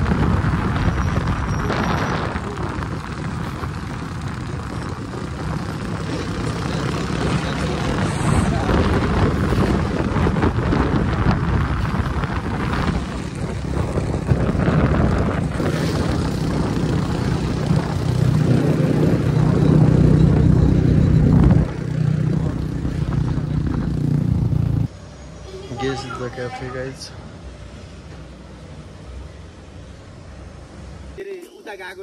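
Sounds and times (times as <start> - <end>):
motorcycle engine running: 0.0 - 24.9
wind noise on microphone: 0.0 - 24.9.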